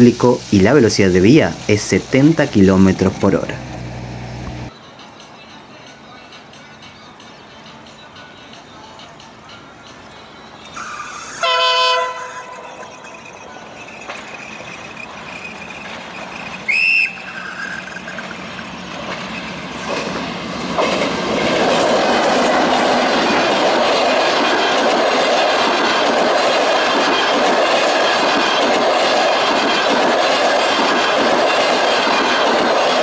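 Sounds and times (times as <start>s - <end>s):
train coaches rolling past: 0.0s - 33.0s
train horn toot: 11.4s - 13.0s.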